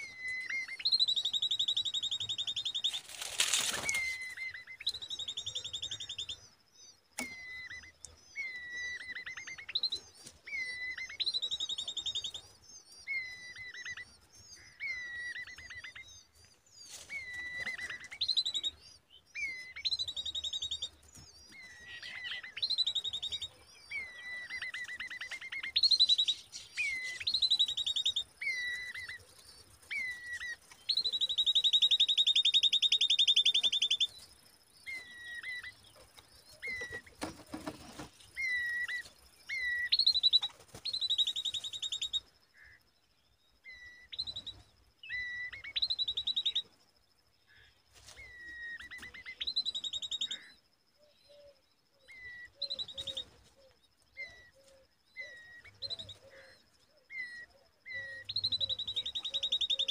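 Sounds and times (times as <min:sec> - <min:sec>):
nestlings begging calls: 0:16.9 - 0:34.2.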